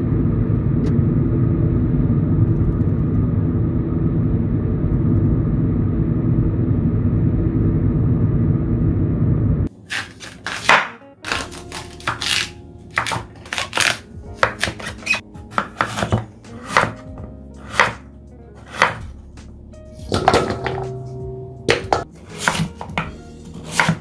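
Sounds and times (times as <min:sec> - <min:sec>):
low rumble: 0:00.0 - 0:09.7, 0:18.2 - 0:22.1
knife chopping on cutting board: 0:09.9 - 0:19.2, 0:21.7 - 0:24.0.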